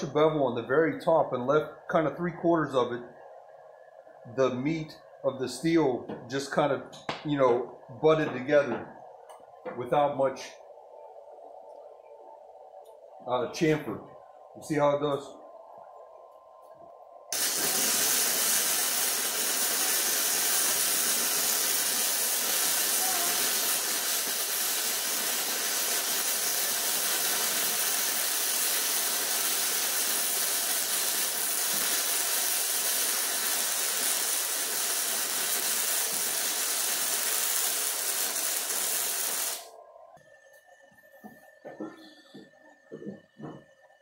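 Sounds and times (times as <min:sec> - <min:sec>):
welding arc hissing: 0:17.3 - 0:39.8.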